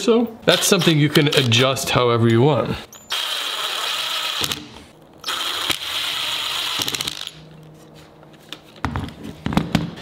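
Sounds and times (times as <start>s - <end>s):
cordless drill driving screws: 3.1s - 4.6s.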